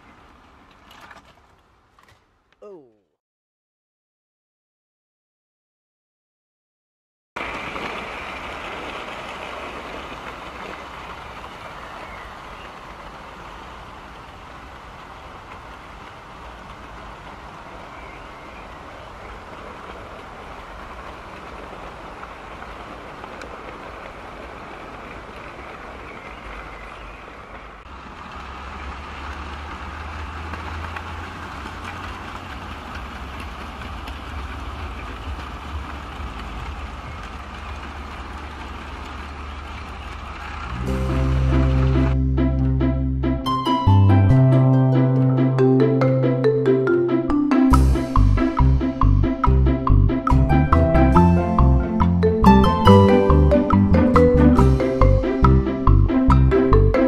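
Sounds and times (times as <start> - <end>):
model train wheels rolling on rails: 28.0 - 40.8
low rumble: 40.6 - 44.0, 47.7 - 57.0.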